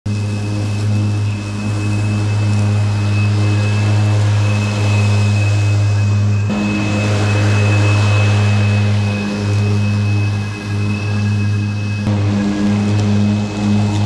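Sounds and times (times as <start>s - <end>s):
lawn tractor mowing grass: 12.1s - 14.0s.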